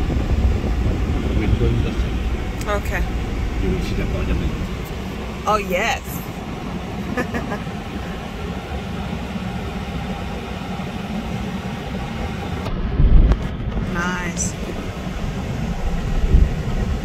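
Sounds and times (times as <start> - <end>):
car engine and road rumble: 0.0 - 17.0.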